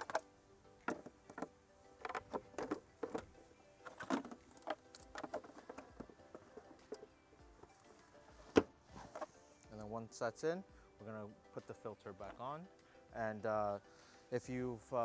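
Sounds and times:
faint background music: 0.0s - 15.0s
plastic airbox knocking and clicking: 0.8s - 7.1s.

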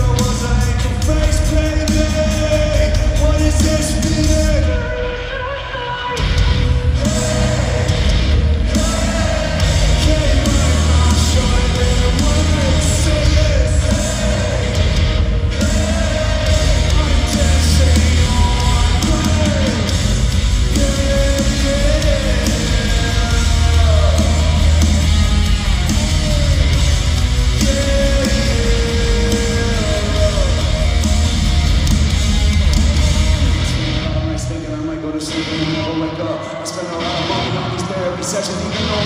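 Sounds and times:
live rock band playing loudly: 0.0s - 39.0s
shouted vocals: 1.8s - 20.1s.

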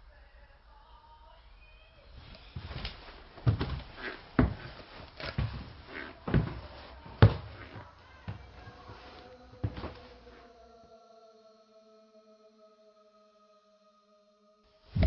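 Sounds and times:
heavy footsteps on wooden stairs: 2.6s - 10.1s.

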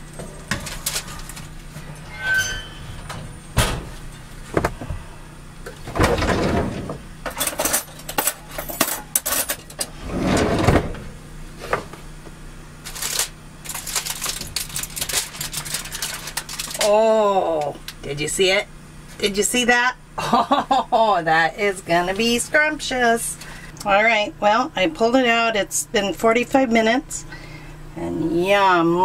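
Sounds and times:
low steady hum: 0.0s - 29.0s
aluminium foil crinkling: 0.6s - 1.6s, 12.8s - 17.2s.

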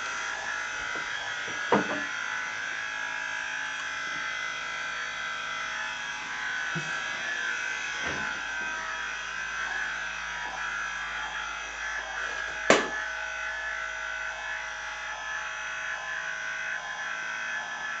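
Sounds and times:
small electric motor whining: 0.0s - 18.0s
sharp knock: 12.7s - 13.0s.

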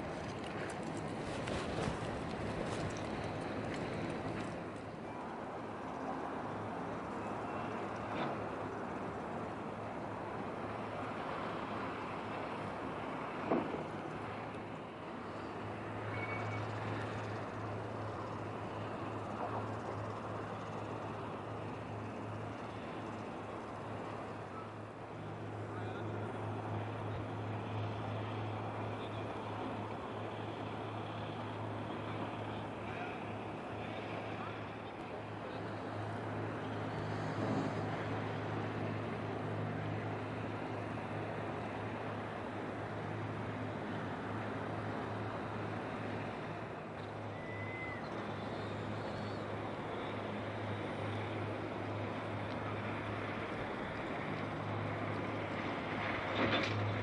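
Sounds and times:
boat engine droning: 0.0s - 57.0s
wind and water noise: 0.0s - 57.0s
faint high whistle: 16.1s - 16.7s, 47.3s - 48.1s.

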